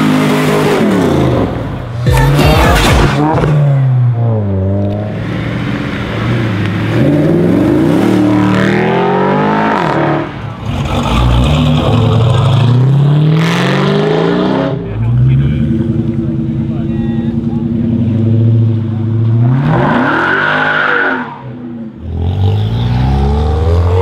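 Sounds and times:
car engines revving: 0:00.0 - 0:24.0.

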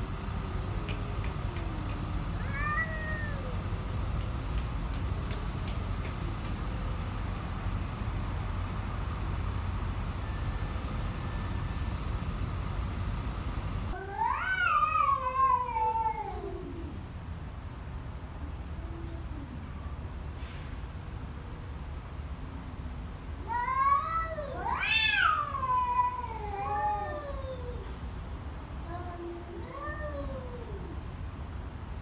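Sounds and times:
cats yowling: 0:01.5 - 0:03.7, 0:14.0 - 0:16.9, 0:23.5 - 0:27.8.

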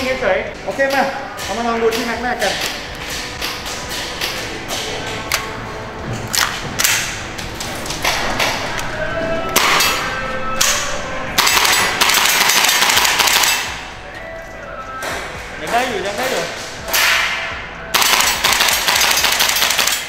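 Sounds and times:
airsoft rifle shots: 0:11.4 - 0:13.8, 0:16.9 - 0:20.0.

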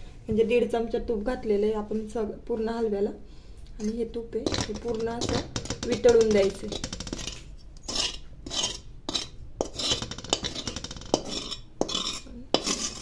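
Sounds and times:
spatula scraping a pan: 0:04.4 - 0:13.0.

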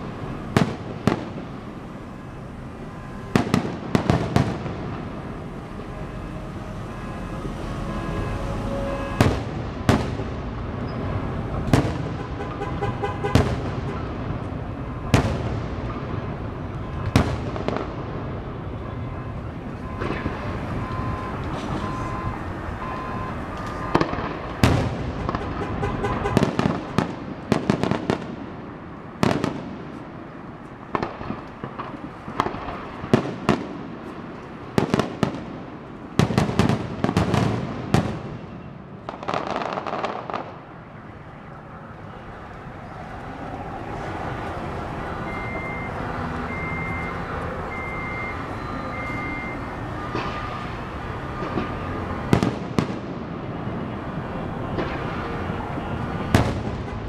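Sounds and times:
steady background noise: 0:00.0 - 0:57.0
short high beep: 0:05.1 - 0:09.4, 0:19.0 - 0:24.0, 0:45.2 - 0:50.6.

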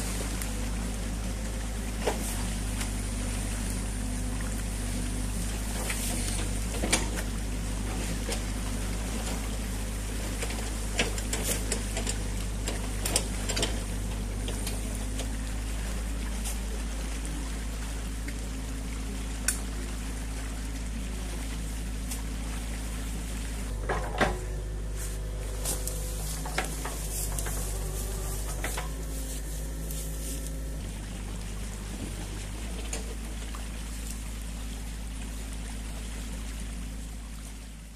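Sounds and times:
excavator engine hum: 0:00.0 - 0:37.9
stream water rushing: 0:00.0 - 0:37.9
rake knocks and splashes: 0:23.8 - 0:30.6.

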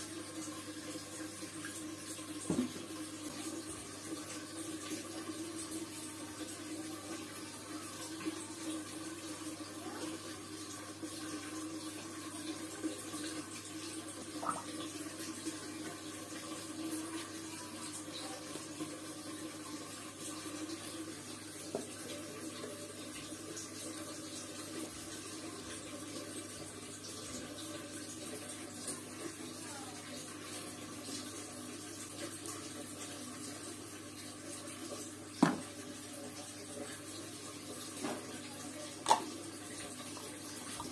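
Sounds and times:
water trickling into basin: 0:00.1 - 0:22.6.

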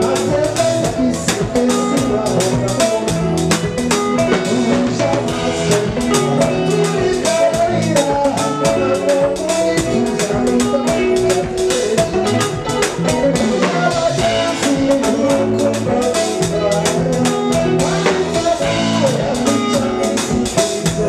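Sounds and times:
drum beat: 0:00.0 - 0:21.0
electric bass: 0:00.0 - 0:21.0
keyboard: 0:00.0 - 0:21.0
man singing: 0:00.0 - 0:21.0.

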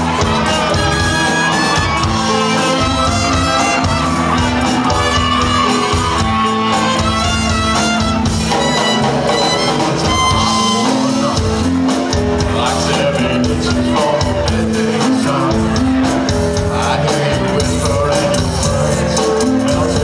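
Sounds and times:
voices shouting: 0:00.0 - 0:07.7
live band playing loudly: 0:00.0 - 0:20.0.

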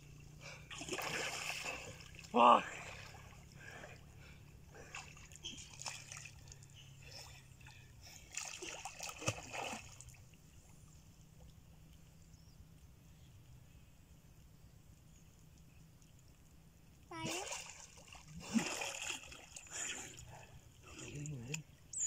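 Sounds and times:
faint water lapping: 0:00.0 - 0:22.0
water splashing from swimming: 0:00.4 - 0:10.4, 0:17.1 - 0:21.8.

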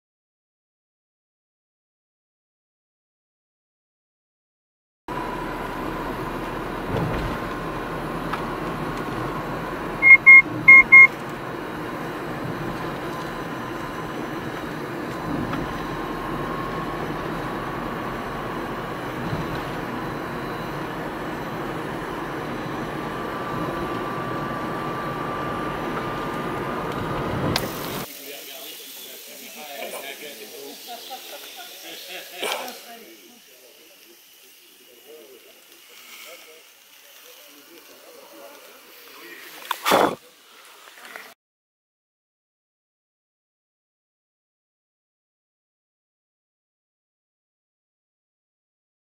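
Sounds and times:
car road and engine noise: 0:05.1 - 0:28.1
short high electronic beeps: 0:10.0 - 0:11.1.

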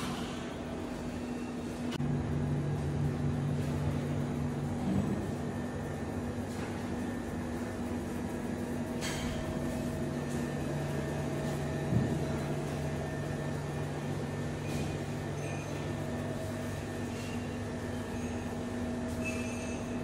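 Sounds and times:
steady machine hum: 0:00.0 - 0:20.0.

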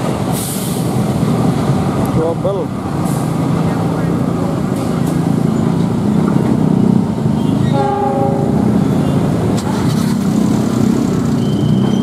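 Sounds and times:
diesel locomotive engine rumbling: 0:00.0 - 0:12.0
train horn blast: 0:07.7 - 0:09.3.

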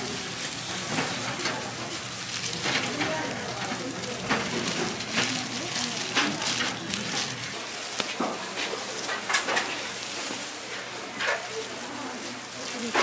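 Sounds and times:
fillings rustling: 0:00.0 - 0:13.0
plastic gloves crinkling: 0:00.0 - 0:13.0.

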